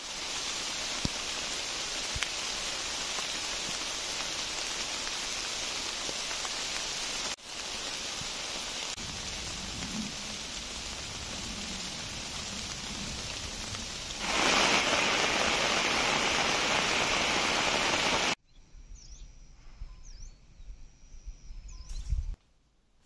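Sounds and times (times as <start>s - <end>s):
steady rain hiss: 0.0s - 18.4s
high bird chirps: 21.4s - 22.2s.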